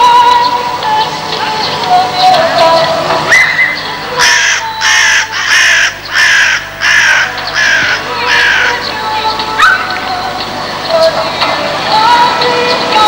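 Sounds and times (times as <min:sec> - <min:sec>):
crow cawing: 0:04.2 - 0:09.0.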